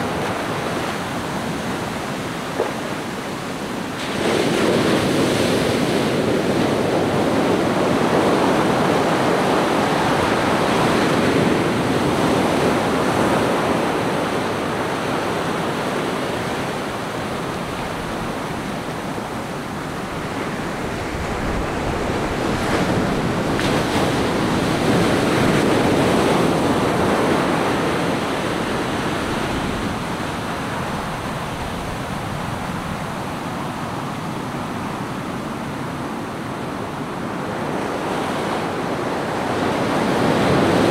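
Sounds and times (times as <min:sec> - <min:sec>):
ocean surf breaking on beach: 0:00.0 - 0:40.9.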